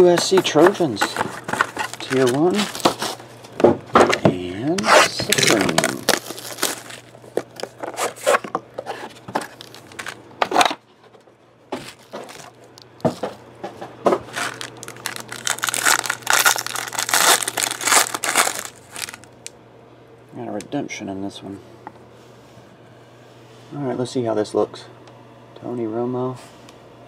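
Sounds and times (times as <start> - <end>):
foil wrapper crinkling and tearing: 0.6 - 3.2, 4.8 - 8.4, 9.4 - 10.2, 11.8 - 12.6, 14.3 - 19.5.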